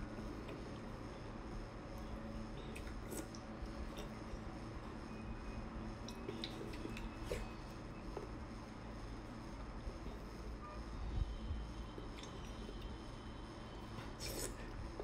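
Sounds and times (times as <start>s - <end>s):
low steady hum: 0.0s - 15.0s
wet chewing mouth sounds: 2.0s - 4.2s, 6.0s - 7.6s, 14.2s - 14.7s.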